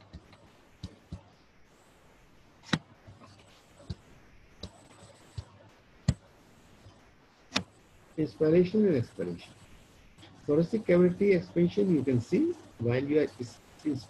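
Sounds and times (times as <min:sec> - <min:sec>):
computer mouse clicks: 0:00.0 - 0:01.3, 0:02.6 - 0:07.8
faint room hiss: 0:00.0 - 0:14.0.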